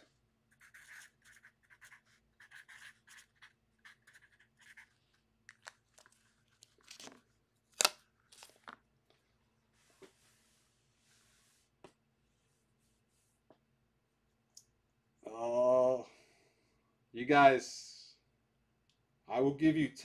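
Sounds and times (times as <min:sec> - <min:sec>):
marker scratching on paper: 0:00.5 - 0:05.0.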